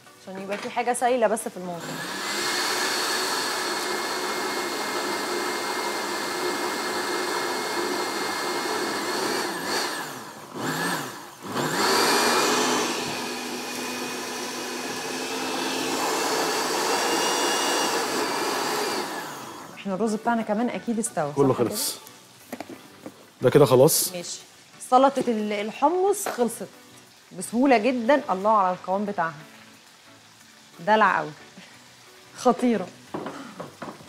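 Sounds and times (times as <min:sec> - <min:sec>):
blender motor whine: 0:01.8 - 0:19.8.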